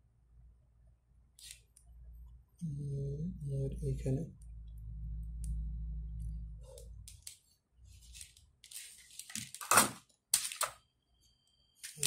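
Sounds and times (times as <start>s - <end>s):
low hum: 1.9s - 7.1s.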